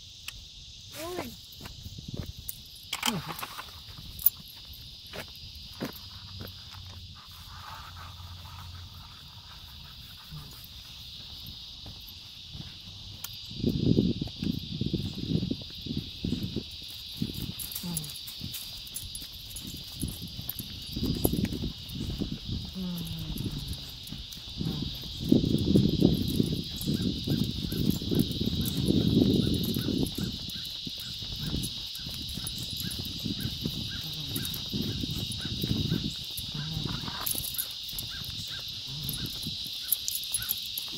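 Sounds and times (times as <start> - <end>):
insects droning: 0.0 - 40.9.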